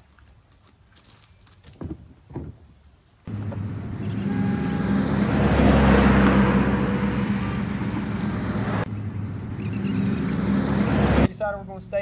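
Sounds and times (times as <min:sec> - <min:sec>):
engine drone: 0:03.3 - 0:11.3
loud rushing noise: 0:03.3 - 0:11.3.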